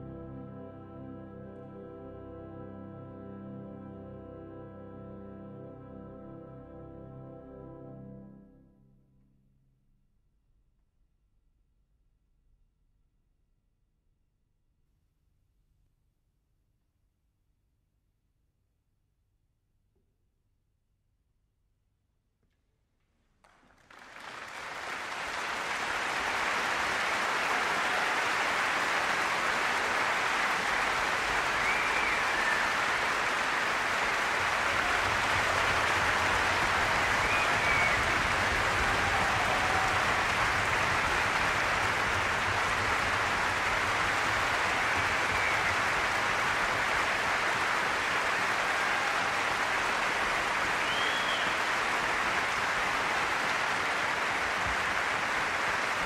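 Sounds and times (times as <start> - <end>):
audience applauding: 23.4 - 56.0.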